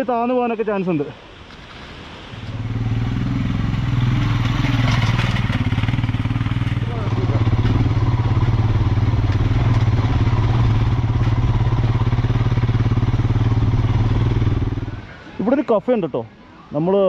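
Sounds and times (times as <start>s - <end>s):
motorcycle engine running: 3.1s - 15.0s.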